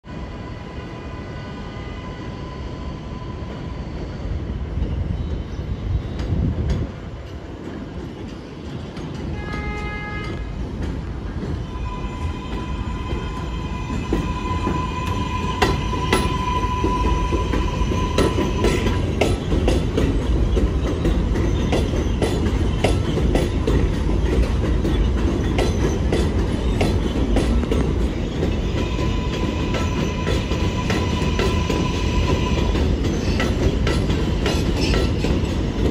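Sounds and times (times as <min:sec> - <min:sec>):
subway train high whine: 0:00.0 - 0:35.9
wheels clacking over rail joints: 0:06.2 - 0:35.9
horn-like tone: 0:11.7 - 0:19.0.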